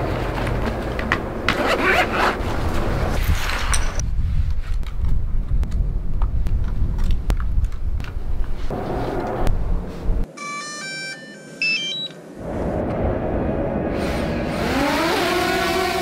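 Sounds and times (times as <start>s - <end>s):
zipper: 1.5s - 4.0s
steady low rumble: 4.0s - 10.3s, 12.3s - 14.7s.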